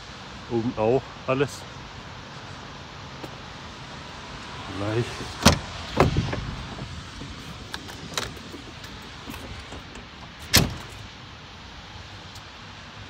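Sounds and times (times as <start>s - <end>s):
truck door closing thump: 5.3s - 11.1s
door latch clicks and knocks: 5.4s - 11.0s.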